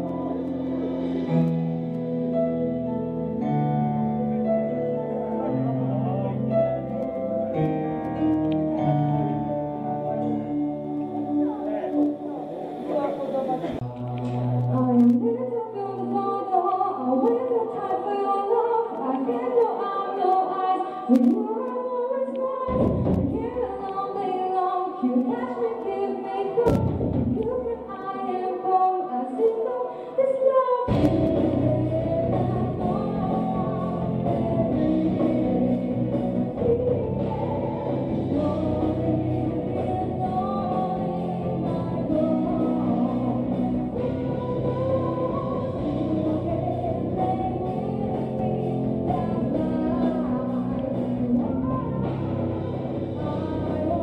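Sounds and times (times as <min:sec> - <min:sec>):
live band playing: 0:00.0 - 0:15.1, 0:30.9 - 0:54.0
keyboards: 0:00.0 - 0:54.0
woman singing into microphone: 0:14.6 - 0:54.0
deep low hits: 0:22.7 - 0:23.5.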